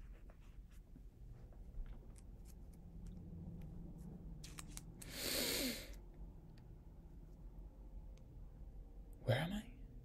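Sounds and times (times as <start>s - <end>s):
breathy sigh: 5.0s - 6.0s.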